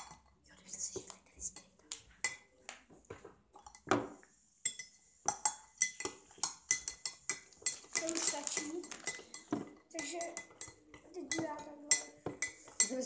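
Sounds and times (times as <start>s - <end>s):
teaspoon clinking in a cup: 4.6s - 13.0s.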